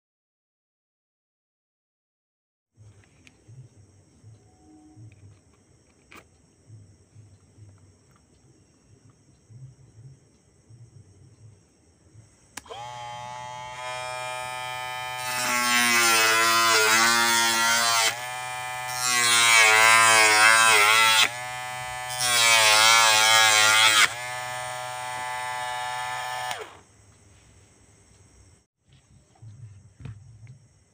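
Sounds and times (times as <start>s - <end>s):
cutting disc grinding card: 12.6s - 26.8s
mini drill whine: 12.6s - 26.9s.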